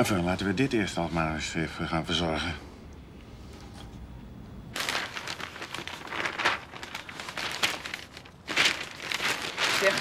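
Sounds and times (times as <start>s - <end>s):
newspaper pages rustling: 4.7s - 10.0s.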